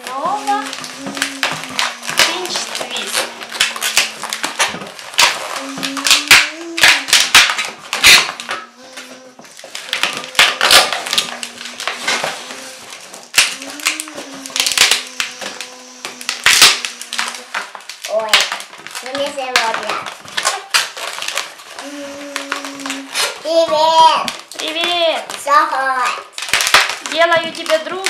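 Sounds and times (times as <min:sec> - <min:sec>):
balloon squeaking and creaking: 0:00.0 - 0:25.6.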